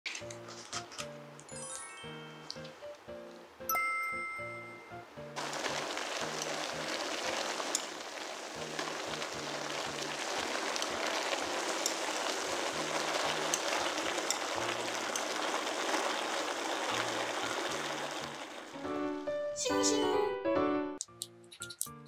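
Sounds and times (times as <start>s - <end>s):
food sizzling in a pan: 5.4s - 19.1s.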